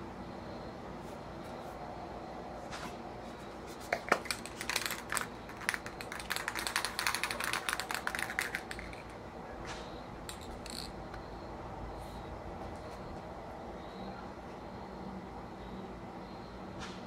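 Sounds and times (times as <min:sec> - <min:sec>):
spray paint can rattling: 0:03.8 - 0:09.2, 0:10.3 - 0:11.0.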